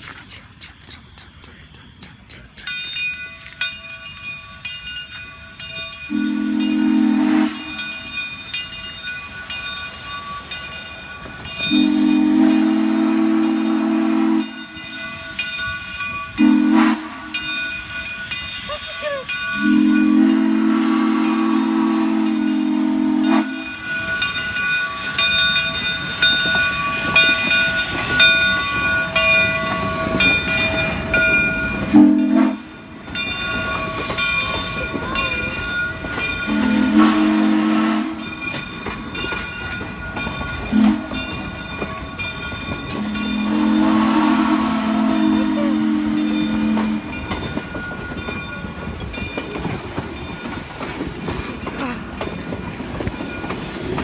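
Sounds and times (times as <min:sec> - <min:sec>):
rolling train wheels: 0:00.0 - 0:54.0
steam locomotive whistle: 0:06.1 - 0:07.9, 0:11.6 - 0:14.8, 0:16.4 - 0:17.5, 0:19.6 - 0:23.9, 0:31.8 - 0:32.8, 0:36.4 - 0:38.3, 0:40.7 - 0:41.4, 0:42.9 - 0:47.3
bell ringing: 0:22.4 - 0:37.0, 0:38.2 - 0:43.9
hiss of steam: 0:33.9 - 0:35.7.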